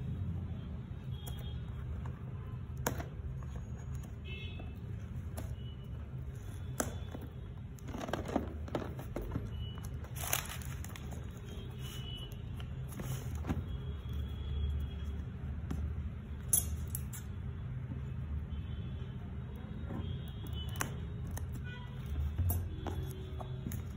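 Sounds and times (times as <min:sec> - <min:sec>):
cardboard box handled and opened: 0:07.8 - 0:11.4.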